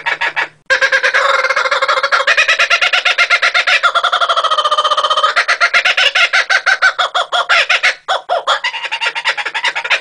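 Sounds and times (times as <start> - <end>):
kookaburra laughing: 0.0 - 10.0.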